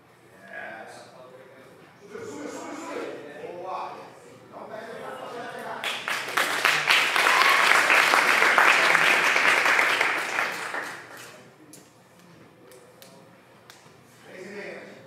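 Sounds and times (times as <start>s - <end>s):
audience applause: 5.8s - 11.4s.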